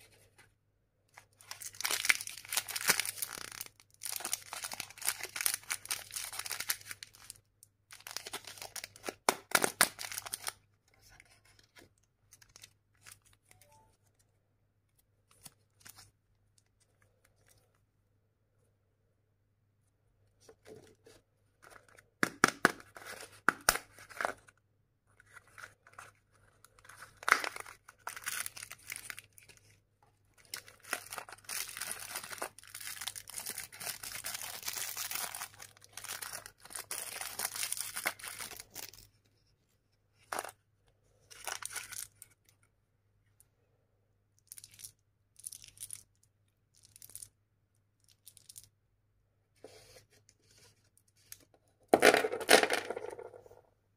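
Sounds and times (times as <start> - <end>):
plastic wrappers rustling and tearing: 1.4 - 10.5, 30.4 - 39.0.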